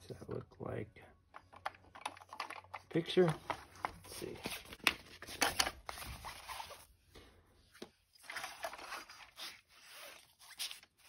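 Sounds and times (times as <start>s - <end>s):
plastic toy handling: 1.2s - 7.0s
paper booklet rustling: 1.6s - 7.0s.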